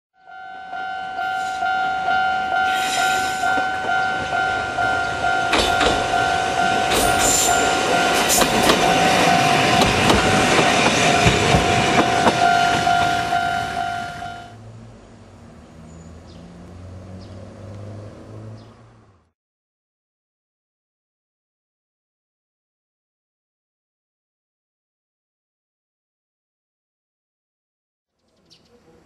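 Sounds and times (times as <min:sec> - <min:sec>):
level crossing bell clanging: 0:00.2 - 0:14.5
electric train rumbling: 0:00.3 - 0:18.6
wheels clacking over rail joints: 0:02.8 - 0:14.0.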